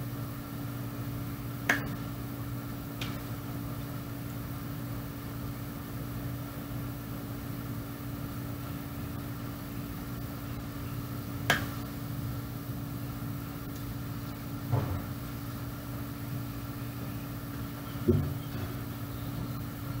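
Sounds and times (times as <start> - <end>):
mechanical hum: 0.0 - 20.0
dull knocks: 18.1 - 18.4.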